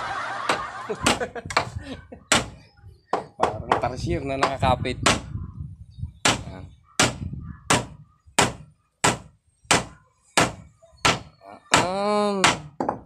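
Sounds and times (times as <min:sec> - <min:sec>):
hammer striking nail into wood: 0:02.3 - 0:02.6, 0:04.4 - 0:05.2, 0:06.2 - 0:13.0.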